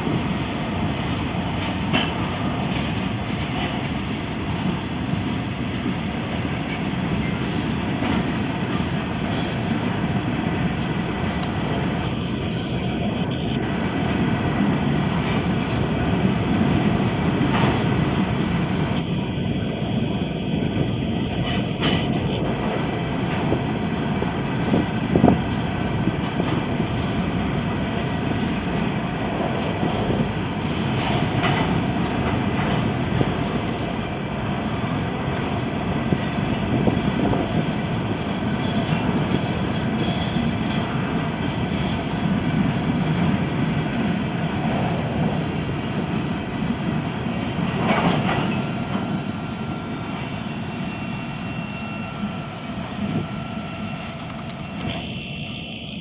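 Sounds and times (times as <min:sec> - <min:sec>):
train wheels rumbling on rails: 0:00.0 - 0:56.0
faint high-pitched wheel squeal: 0:46.1 - 0:56.0.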